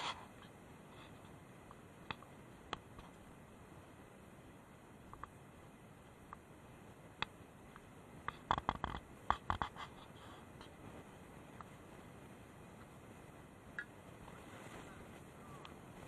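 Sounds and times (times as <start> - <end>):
faint steady hiss: 0.0 - 16.0.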